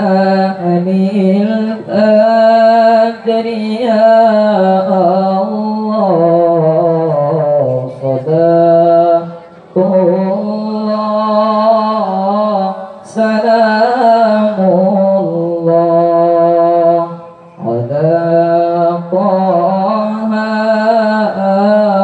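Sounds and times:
man reciting melodically over loudspeakers: 0:00.0 - 0:22.0.

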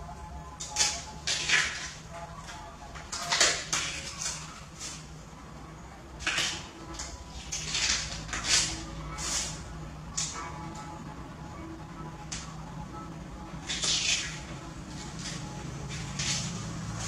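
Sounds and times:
steady low hum: 0:00.0 - 0:17.0
knife scraping vegetable: 0:07.5 - 0:09.6.

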